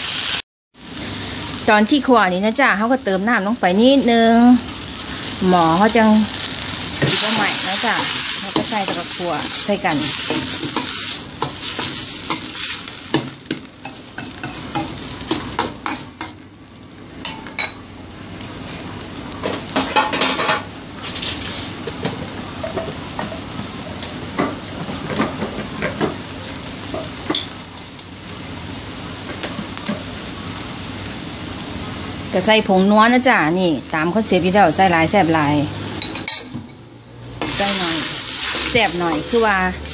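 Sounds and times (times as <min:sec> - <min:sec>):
chicken sizzling in a wok: 0:00.0 - 0:39.9
spatula scraping and knocking pan: 0:07.0 - 0:16.4, 0:19.8 - 0:26.2, 0:37.4 - 0:39.6.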